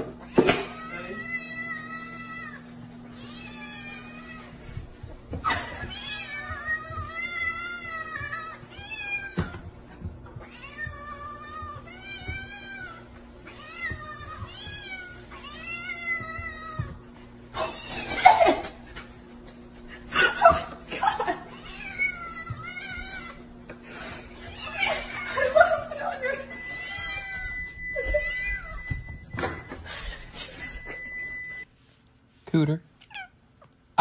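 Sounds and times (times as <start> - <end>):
cats meowing: 0.2 - 18.8, 21.4 - 29.2.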